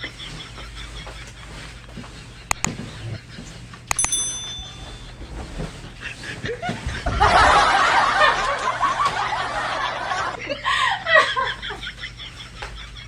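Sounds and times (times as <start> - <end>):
click and bright ding: 3.9 - 5.1
loud sustained laughter: 6.4 - 13.0.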